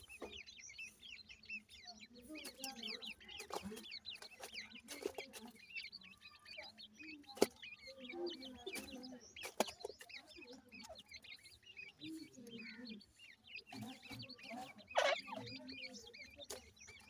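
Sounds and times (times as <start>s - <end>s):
chicks peeping: 0.0s - 17.0s
hen clucking softly: 14.8s - 15.6s.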